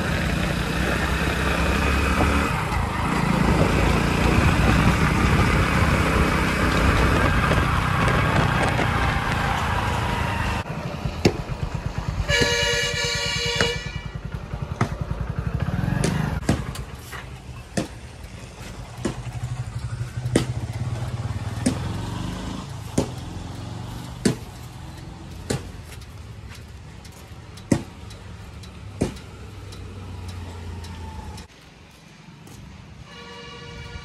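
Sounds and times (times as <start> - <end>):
vehicle engine idling: 10.6 - 31.6.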